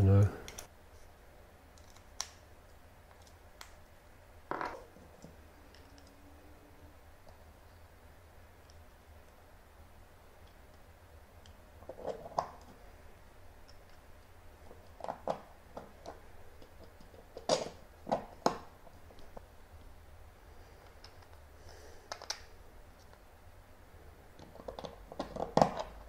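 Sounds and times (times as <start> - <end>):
plastic parts clicking together: 22.1 - 23.2.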